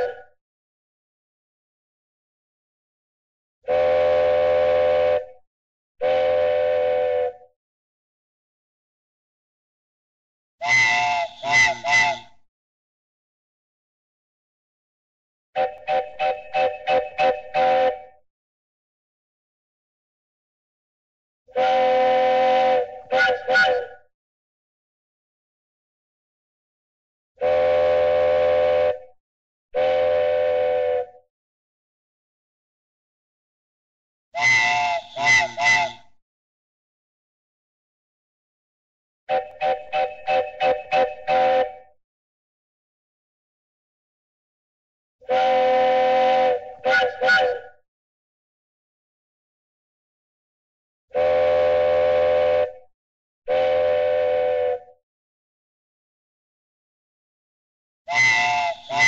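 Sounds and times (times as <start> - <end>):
cartoon train whistle toots: 0.0 - 0.3, 3.7 - 5.4, 6.0 - 7.5, 10.6 - 12.4, 15.6 - 18.2, 21.5 - 24.1, 27.4 - 29.1, 29.8 - 31.2, 34.4 - 36.2, 39.3 - 41.9, 45.2 - 47.8, 51.1 - 52.9, 53.5 - 55.0, 58.1 - 59.0.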